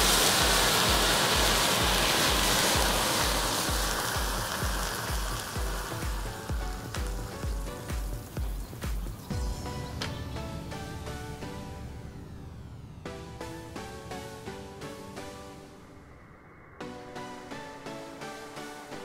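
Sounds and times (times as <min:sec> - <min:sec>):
gunpowder burning with rushing hiss: 0:00.0 - 0:10.0
music with bass beat: 0:00.0 - 0:11.8.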